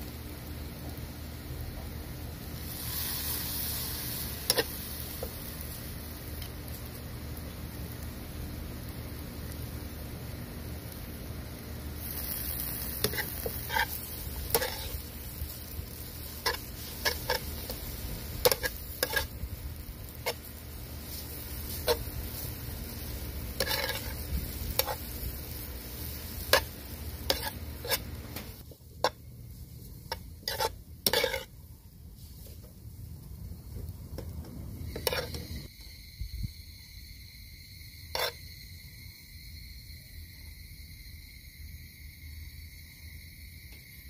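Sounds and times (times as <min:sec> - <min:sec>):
noodles sizzling in a wok: 0:00.0 - 0:44.0.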